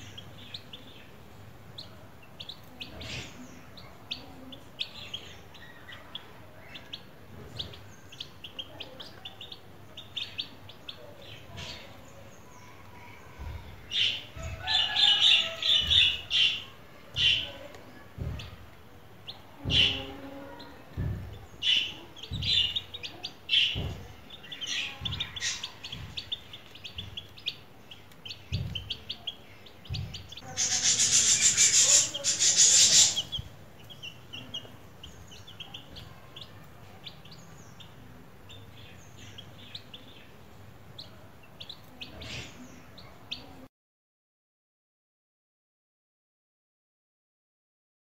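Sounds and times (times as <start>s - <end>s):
chicks peeping: 0.0s - 43.6s
rustling hiss: 30.4s - 33.4s.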